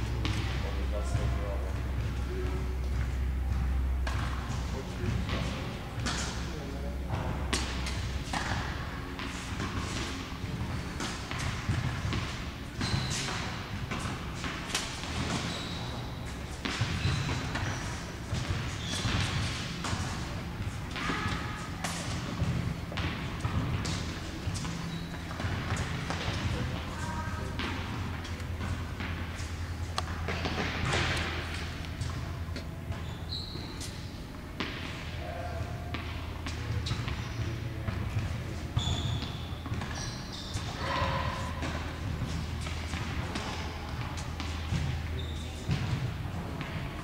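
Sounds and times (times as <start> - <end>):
steady low hum: 0.0 - 47.0
tennis ball bouncing on court: 0.1 - 0.6, 1.2 - 6.5, 7.1 - 47.0
racket hitting tennis ball: 2.9 - 6.5, 7.4 - 33.0.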